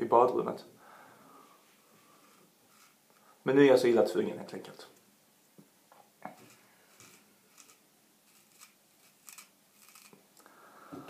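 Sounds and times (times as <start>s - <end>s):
razor scraping beard hair: 6.3s - 10.1s.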